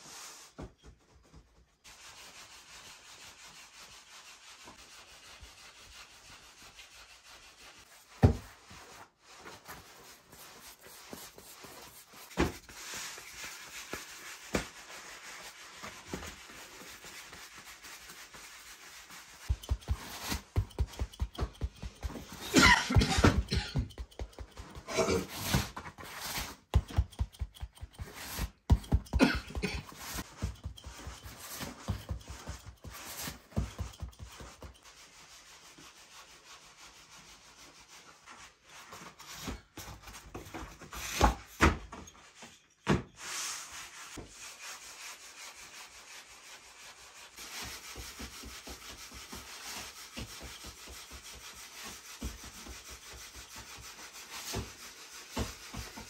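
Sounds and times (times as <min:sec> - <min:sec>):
hands patting dough on table: 0:19.5 - 0:25.6.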